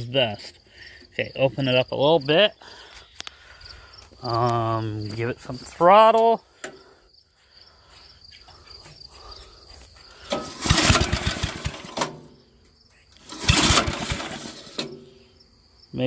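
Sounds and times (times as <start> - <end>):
small engine cranking: 10.3 - 12.1, 13.2 - 14.9.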